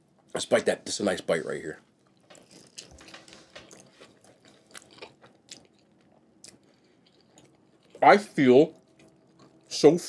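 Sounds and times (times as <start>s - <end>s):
person chewing food: 1.9s - 8.0s, 8.7s - 9.7s.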